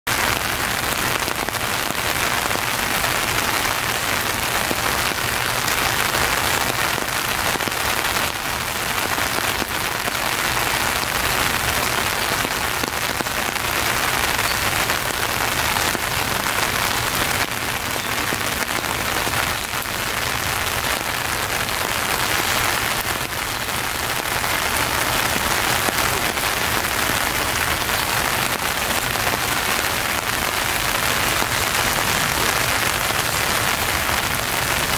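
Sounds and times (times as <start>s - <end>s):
steady rain on trees: 0.1s - 34.9s.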